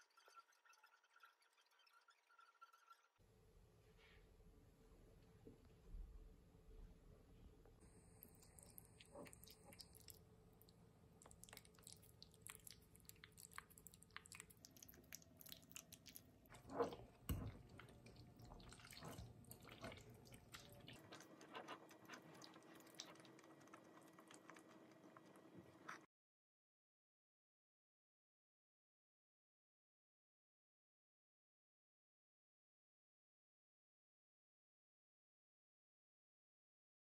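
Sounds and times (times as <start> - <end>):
person chewing: 7.9 - 26.1
fork on plate: 16.5 - 23.3.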